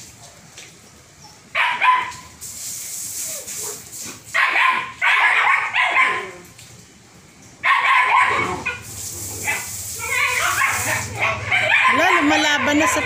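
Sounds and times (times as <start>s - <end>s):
dogs barking: 1.2s - 2.4s, 3.5s - 6.5s, 7.6s - 13.0s
garden hose spray hissing: 2.0s - 5.0s, 8.3s - 13.0s.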